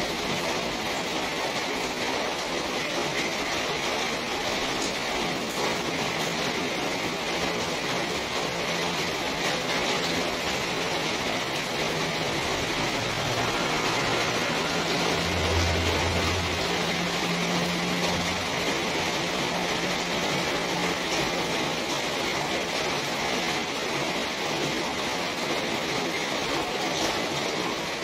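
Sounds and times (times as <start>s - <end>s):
steady rain falling: 0.0s - 28.0s
low hum: 8.7s - 20.6s.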